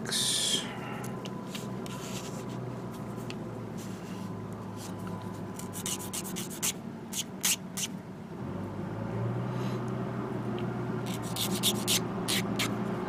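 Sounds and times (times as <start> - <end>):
sanding stick scratching plastic: 5.6 - 7.9, 11.0 - 12.8.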